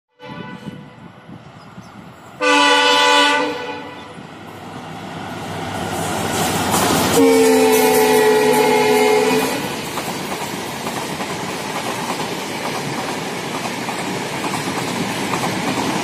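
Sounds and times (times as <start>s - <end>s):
locomotive horn blasts: 0.1s - 1.0s, 2.4s - 4.2s, 7.1s - 9.7s
train wheels rumbling on rails: 0.4s - 16.0s.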